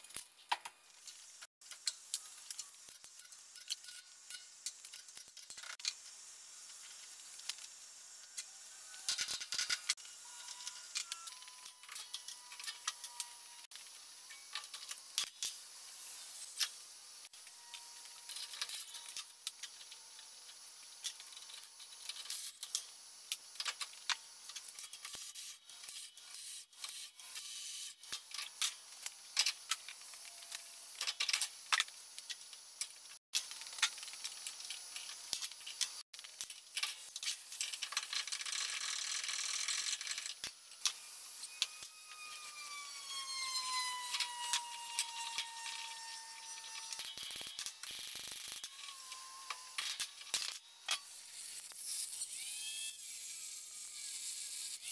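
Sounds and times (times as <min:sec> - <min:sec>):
metal parts clinking and rattling: 0:33.4 - 0:40.9.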